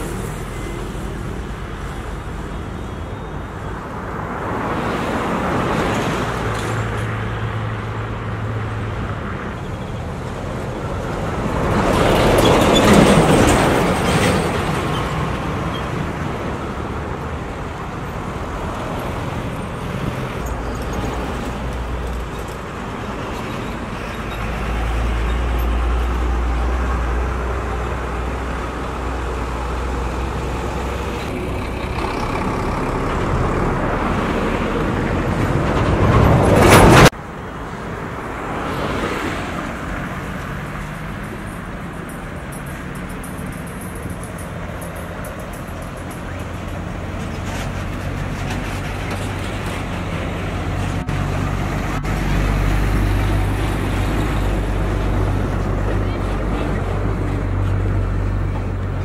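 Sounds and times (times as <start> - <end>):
road roller diesel engines: 0.0 - 59.0.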